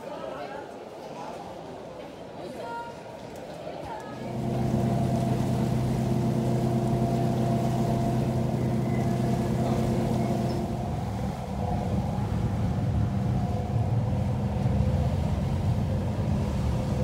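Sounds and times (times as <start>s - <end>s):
ferry engine humming: 4.1s - 17.0s.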